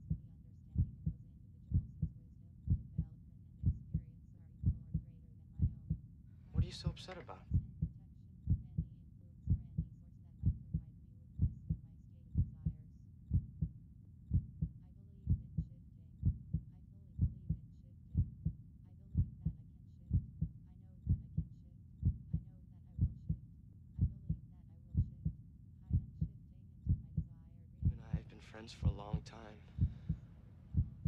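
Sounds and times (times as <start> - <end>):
heartbeat: 0.0 - 6.0, 7.5 - 18.6, 19.2 - 23.4, 24.0 - 31.0.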